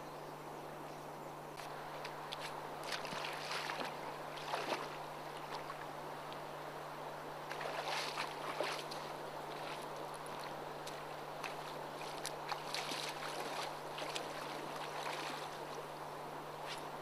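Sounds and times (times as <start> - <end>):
steady low hum: 0.0 - 17.0
river water lapping on pebbles: 1.6 - 5.9, 7.4 - 16.0
water splashes: 2.0 - 5.9, 7.4 - 16.0.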